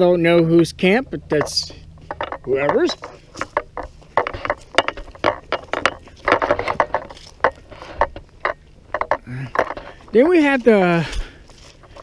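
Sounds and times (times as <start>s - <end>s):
footsteps crunching dry leaves: 10.1s - 12.0s.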